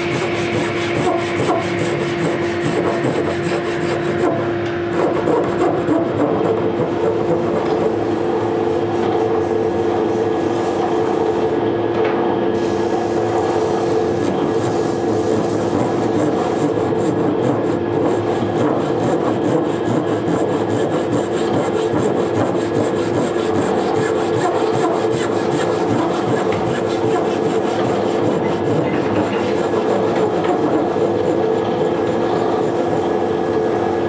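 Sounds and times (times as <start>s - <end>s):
handsaw cutting wood: 0.0s - 8.4s, 13.2s - 33.2s.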